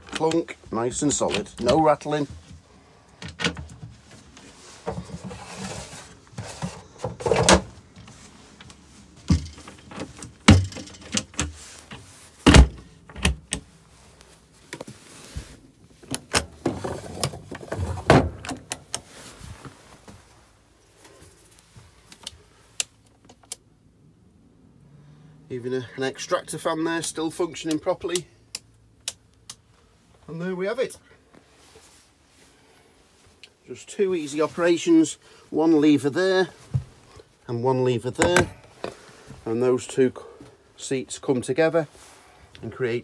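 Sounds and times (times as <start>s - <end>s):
wooden cupboard doors clunking shut: 4.8s - 7.8s, 9.2s - 11.6s, 12.4s - 13.7s, 16.1s - 18.7s, 38.2s - 38.7s.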